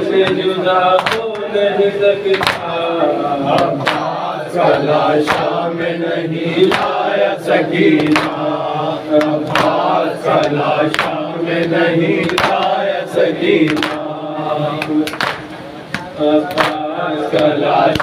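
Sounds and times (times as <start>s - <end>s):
men chanting: 0.0s - 18.0s
hands slapping chests: 1.0s - 1.5s, 3.6s - 4.1s, 8.0s - 8.4s, 12.2s - 12.8s, 13.6s - 14.0s, 14.8s - 16.8s, 17.4s - 18.0s.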